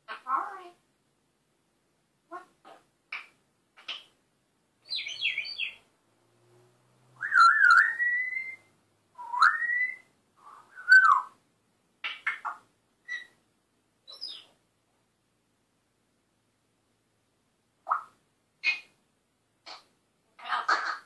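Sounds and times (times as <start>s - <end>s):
parrot chirps: 4.8s - 5.8s, 7.2s - 11.4s, 12.0s - 13.4s, 14.1s - 14.5s, 17.8s - 19.0s, 19.6s - 21.0s
parrot whistling like a siren: 7.2s - 10.0s.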